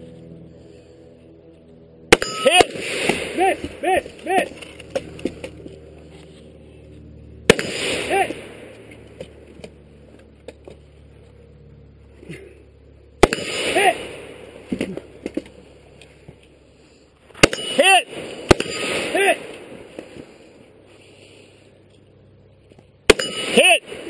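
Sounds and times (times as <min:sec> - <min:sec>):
rifle shots with echo: 0:07.5 - 0:08.8, 0:13.2 - 0:14.7, 0:17.4 - 0:20.0.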